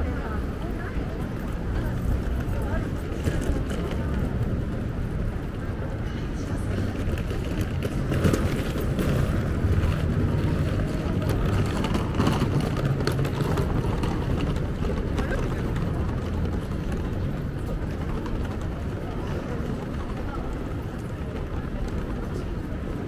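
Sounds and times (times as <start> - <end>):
low traffic rumble: 0.0 - 23.0
passers-by talking: 0.0 - 23.0.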